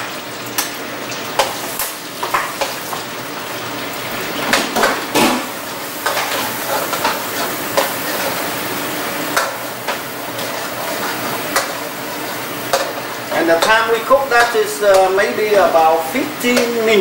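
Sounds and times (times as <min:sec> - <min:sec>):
garlic sizzling in butter: 0:00.0 - 0:17.0
metal utensil scraping pan: 0:04.5 - 0:08.5, 0:09.4 - 0:15.1.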